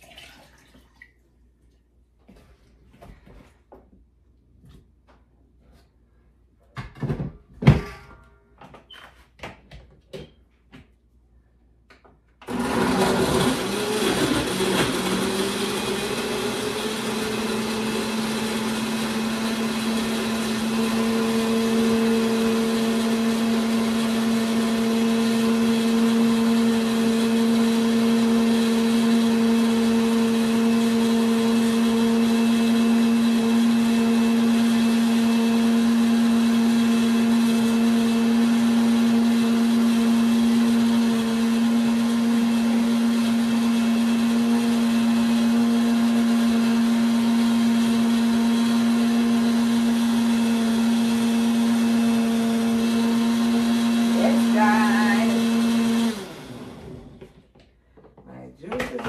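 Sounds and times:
blender running: 12.4 - 57.4.

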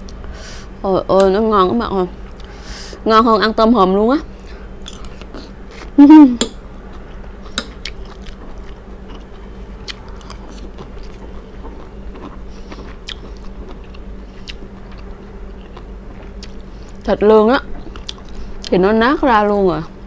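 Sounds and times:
person chewing food: 4.4 - 6.0, 6.9 - 17.1, 17.7 - 18.7.

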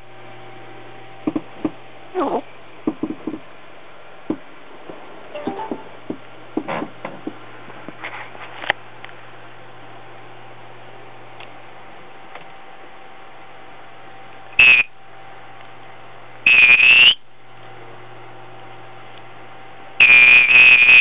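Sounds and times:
parrot shrill buzzing calls: 14.6 - 14.9, 16.5 - 17.2, 20.0 - 21.0.

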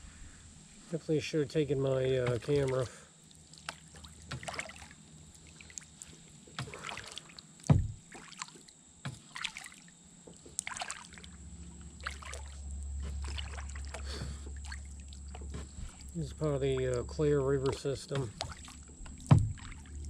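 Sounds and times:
paddle splashing in water: 2.1 - 20.0
low thump: 7.7 - 8.0, 19.3 - 19.7.

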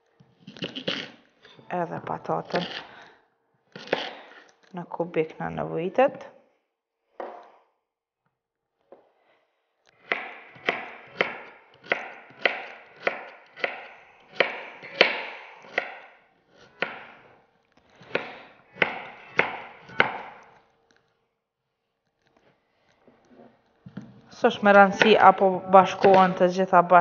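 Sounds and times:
knife chopping on wooden board: 10.0 - 16.1, 16.7 - 17.2, 18.0 - 20.5, 26.0 - 26.4.

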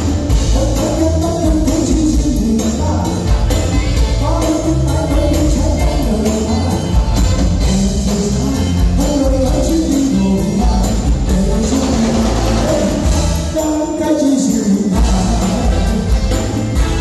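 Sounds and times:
heavy bass: 0.0 - 13.9, 14.6 - 17.0
live pop band: 0.0 - 17.0
man singing lead vocal: 0.0 - 17.0.

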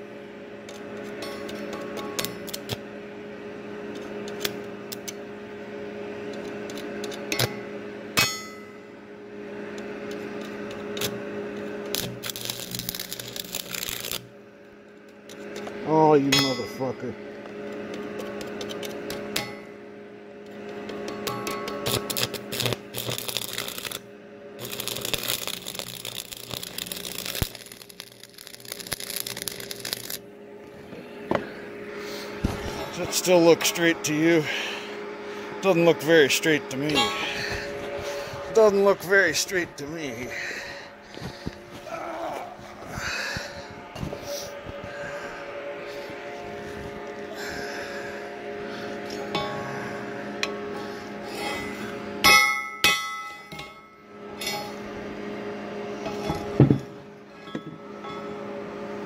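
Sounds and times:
steady hum: 0.0 - 59.0
welding arc crackling: 0.7 - 2.8, 9.9 - 15.4, 20.9 - 30.3.

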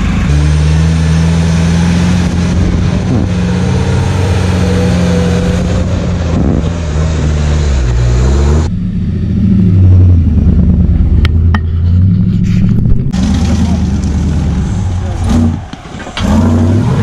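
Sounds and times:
truck engine revving in mud: 0.0 - 8.8, 12.0 - 17.0
truck engine running steadily: 8.5 - 16.4.

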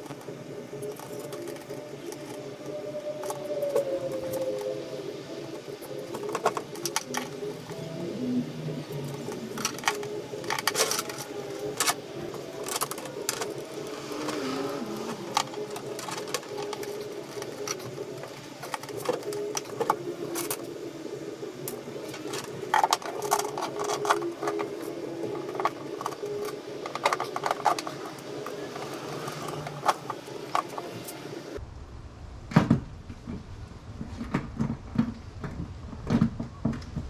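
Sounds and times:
steady hum: 0.0 - 37.0
cable ties clicking and rattling: 8.9 - 20.7, 21.6 - 31.2.

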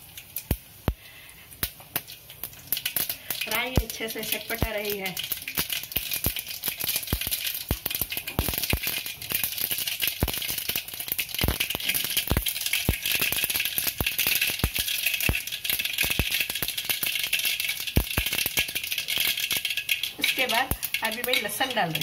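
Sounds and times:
seeds spluttering in hot oil: 0.0 - 22.0.

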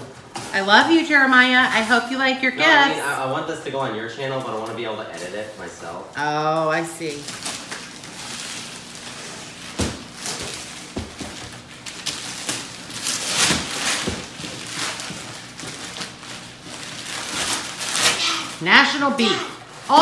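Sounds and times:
paper rustling and crinkling: 7.1 - 18.6
boxes knocking on table: 10.9 - 11.6.

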